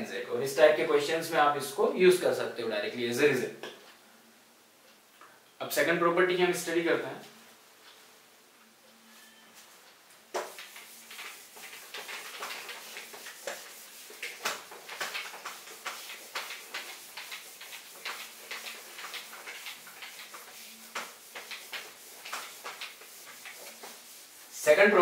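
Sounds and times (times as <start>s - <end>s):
eraser rubbing on whiteboard: 10.4s - 25.0s.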